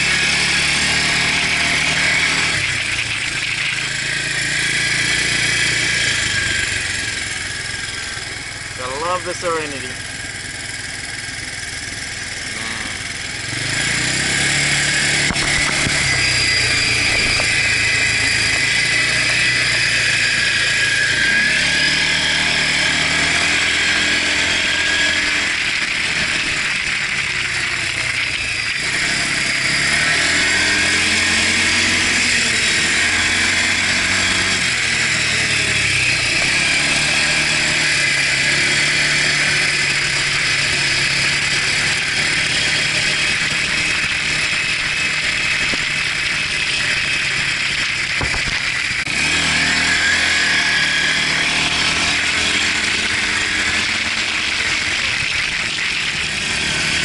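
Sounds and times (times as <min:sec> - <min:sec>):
quad bike engine revving: 0:00.0 - 0:57.0.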